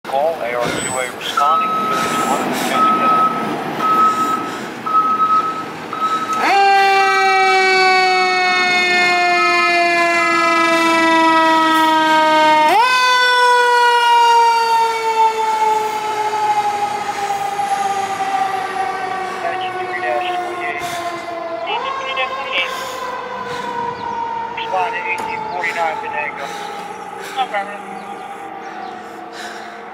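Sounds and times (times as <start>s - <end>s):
fire engine siren: 0.6s - 29.9s
electronic beeping: 1.4s - 6.4s.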